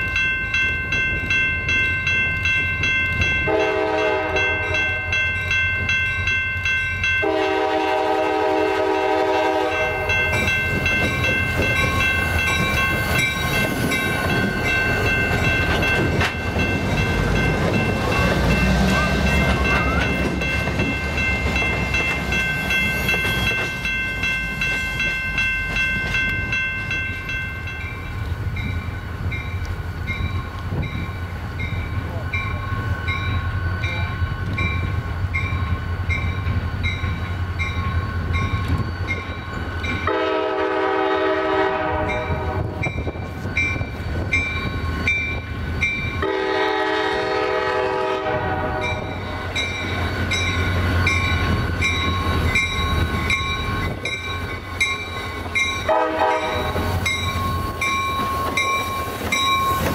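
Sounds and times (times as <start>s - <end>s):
diesel locomotives rumbling: 0.0s - 59.9s
locomotive bell ringing: 0.0s - 59.9s
locomotive horn blast: 3.4s - 5.2s, 7.2s - 10.1s, 40.0s - 42.8s, 46.2s - 49.2s, 55.8s - 56.8s.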